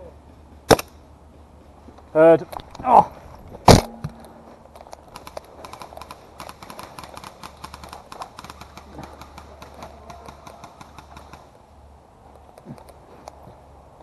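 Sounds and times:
distant airsoft rifles shooting: 0:05.1 - 0:11.6.

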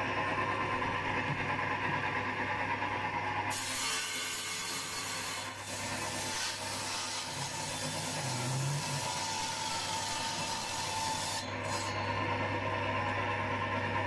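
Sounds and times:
motor hum: 0:00.0 - 0:03.6, 0:09.6 - 0:14.0
saw blade cutting wood: 0:03.5 - 0:12.6.

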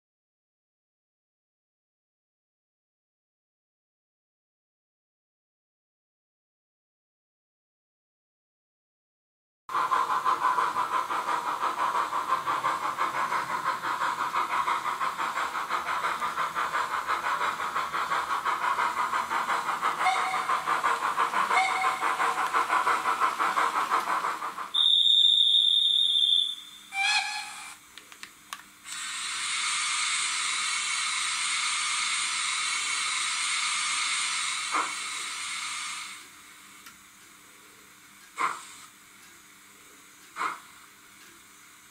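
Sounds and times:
steam hissing: 0:09.7 - 0:27.8, 0:28.8 - 0:36.8, 0:37.4 - 0:41.9
steam locomotive chuffing: 0:09.7 - 0:27.9, 0:28.9 - 0:36.8, 0:37.4 - 0:41.9
lower whistle: 0:20.0 - 0:20.5, 0:21.5 - 0:22.2, 0:24.7 - 0:27.8
loud high whistle blast: 0:24.8 - 0:27.8.

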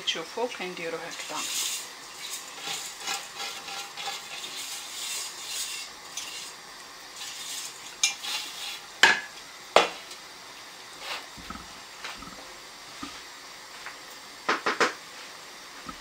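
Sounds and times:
grainy rustle and scrape: 0:01.1 - 0:09.0.

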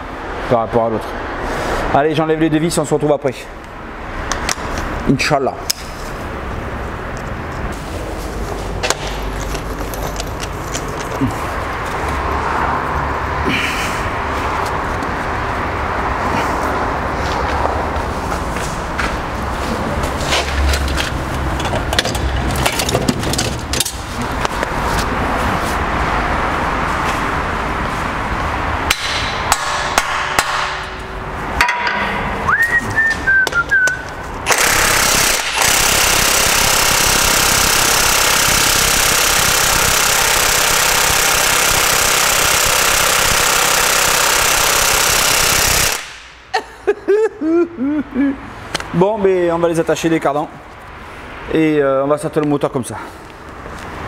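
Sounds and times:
impact wrench hammering: 0:08.8 - 0:11.3, 0:28.9 - 0:32.4, 0:34.4 - 0:46.4.

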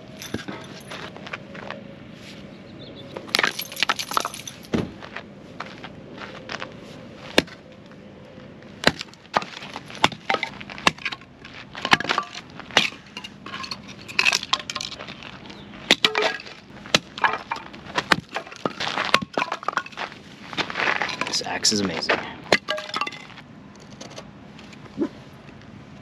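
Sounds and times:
axe chopping wood: 0:07.4 - 0:07.6, 0:08.8 - 0:11.2, 0:11.8 - 0:13.0, 0:15.9 - 0:19.6, 0:22.5 - 0:22.9
split wood clattering down: 0:08.8 - 0:20.1.

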